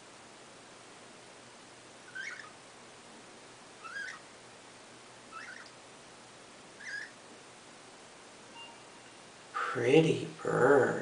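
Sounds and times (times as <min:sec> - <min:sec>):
budgerigar chirping: 0:02.1 - 0:02.6, 0:03.8 - 0:04.3, 0:05.3 - 0:05.8, 0:06.8 - 0:07.2.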